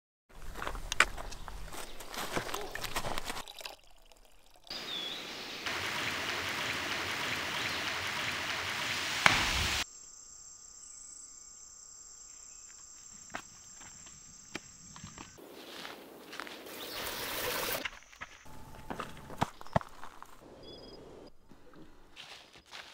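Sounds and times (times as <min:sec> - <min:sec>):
high insect buzz: 0:04.7 - 0:15.4.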